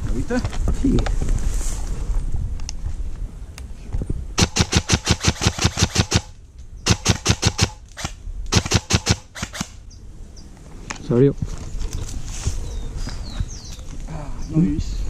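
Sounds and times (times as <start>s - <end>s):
airsoft rifle full-auto fire: 4.4s - 9.8s.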